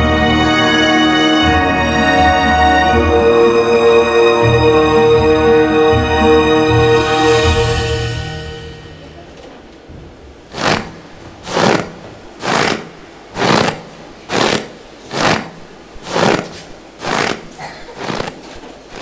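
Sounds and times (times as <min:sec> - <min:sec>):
person puffing heavily: 0:10.5 - 0:19.0.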